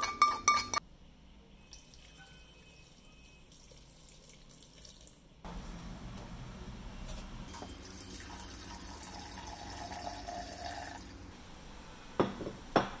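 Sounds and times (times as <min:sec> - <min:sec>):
water pouring into pot: 0:01.7 - 0:05.2, 0:07.6 - 0:11.2.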